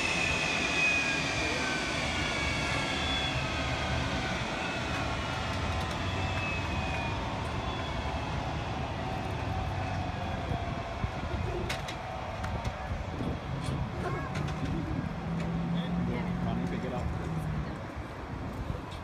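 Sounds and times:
jet engines whining: 0.0 - 19.0.

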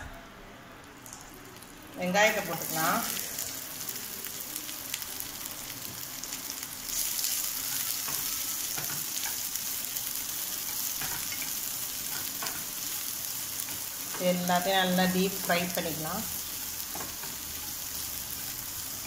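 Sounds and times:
onions sizzling in oil: 1.3 - 19.0.

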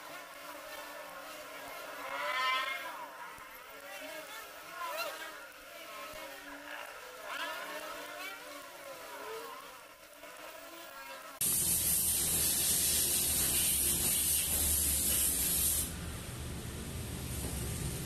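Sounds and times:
shielding gas hissing from torch: 11.4 - 18.0.

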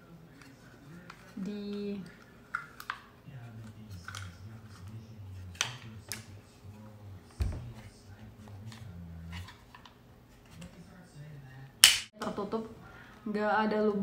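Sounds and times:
dull knock: 7.4 - 7.8.

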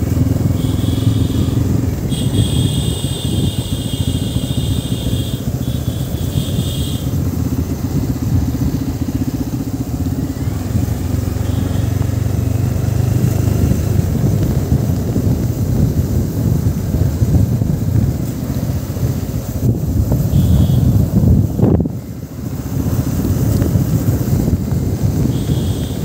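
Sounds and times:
motorcycle engine cruising: 0.0 - 26.0
high steady buzz: 0.2 - 7.7, 25.2 - 26.0.

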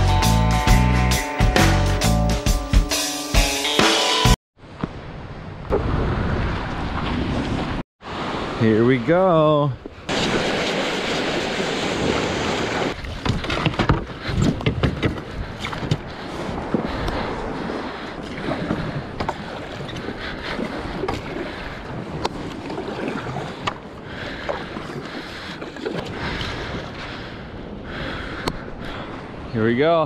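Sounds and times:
surf washing up sand: 5.9 - 13.0
paddle dipping and splashing: 9.8 - 27.3.

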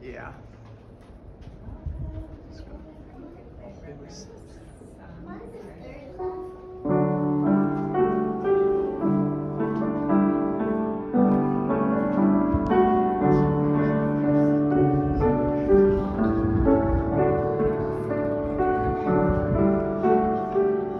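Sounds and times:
piano melody over chords: 6.4 - 20.9.

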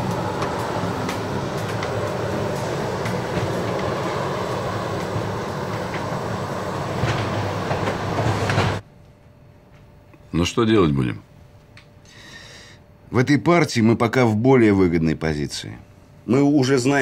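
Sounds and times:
engine rumble: 0.0 - 8.8
rushing hiss: 0.0 - 8.8.

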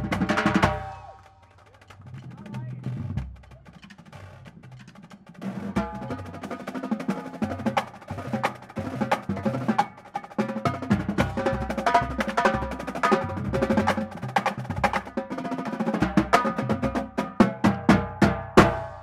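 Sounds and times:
marching drumline playing: 0.0 - 19.0.

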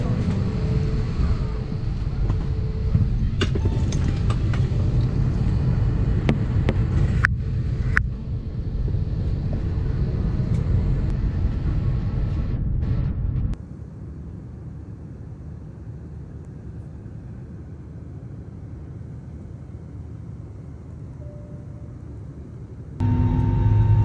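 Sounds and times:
airliner cabin rumble: 0.0 - 24.0.

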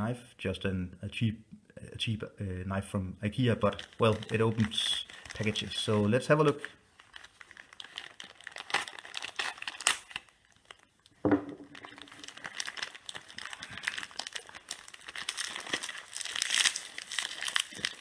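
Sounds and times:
plastic bag crinkling and tearing: 3.4 - 18.0.

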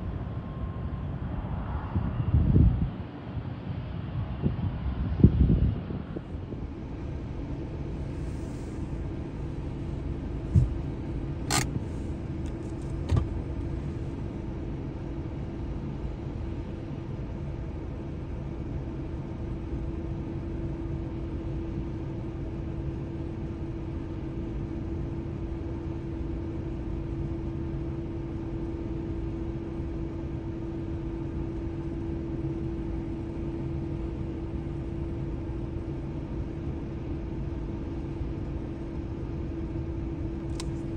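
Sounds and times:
steady hum: 5.3 - 40.9
sharp clicks: 11.5 - 11.8.

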